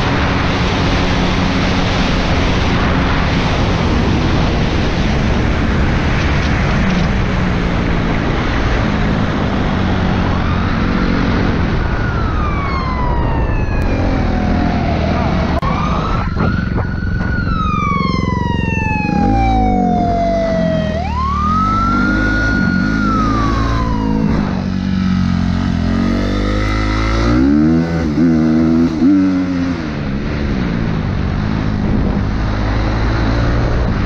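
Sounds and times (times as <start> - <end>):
police siren wailing: 9.9 - 28.2
dirt bike engine revving: 25.1 - 29.8.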